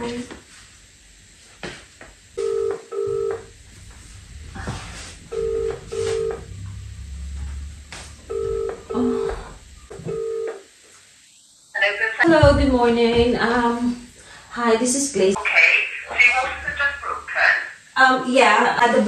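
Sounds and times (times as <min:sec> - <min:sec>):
telephone ringing tone: 0:02.4 - 0:03.5, 0:05.3 - 0:06.6, 0:08.2 - 0:10.7.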